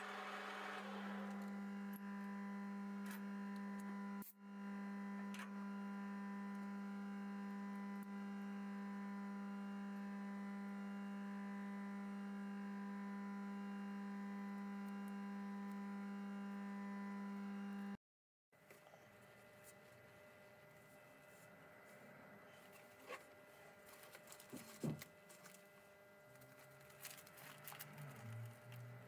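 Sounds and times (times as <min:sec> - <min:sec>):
low electrical hum: 0:18.6 - 0:29.0.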